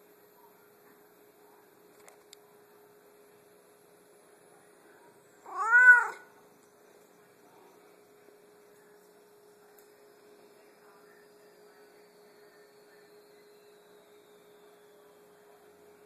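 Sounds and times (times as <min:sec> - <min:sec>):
cat meowing: 0:05.4 - 0:06.2.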